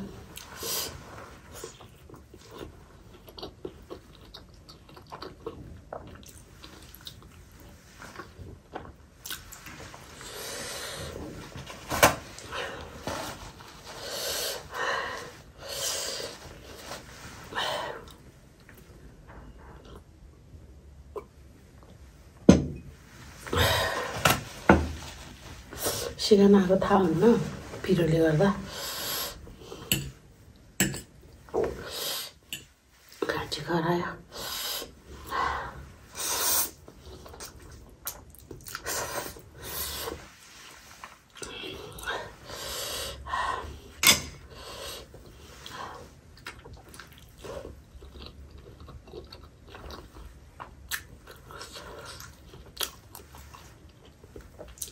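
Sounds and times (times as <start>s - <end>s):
wet chewing: 1.6s - 9.7s, 46.3s - 54.9s
tissue rustle: 26.8s - 28.7s.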